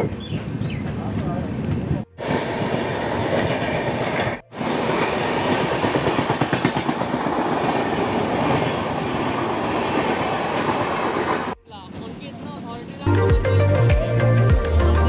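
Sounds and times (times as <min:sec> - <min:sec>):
train wheels rumbling on rails: 0:00.0 - 0:13.0
rapid clickety-clack: 0:05.6 - 0:07.9.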